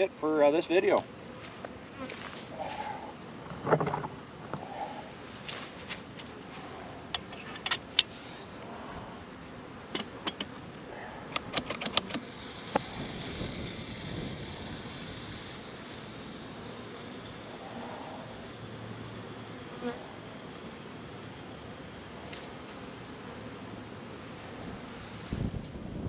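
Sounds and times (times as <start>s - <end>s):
vaporizer hissing: 12.0s - 17.5s.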